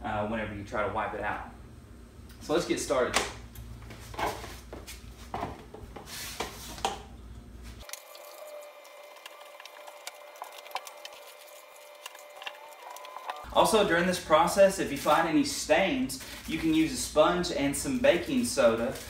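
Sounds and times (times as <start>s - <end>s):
water splashing in bucket: 7.8s - 13.5s
wet cloth squishing: 7.8s - 13.5s.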